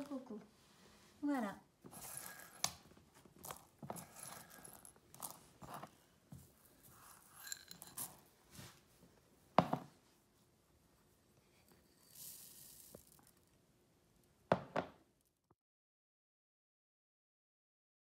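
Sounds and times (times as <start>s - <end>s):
dried beans rattling in ceramic bowls: 1.8s - 8.4s, 11.8s - 13.6s.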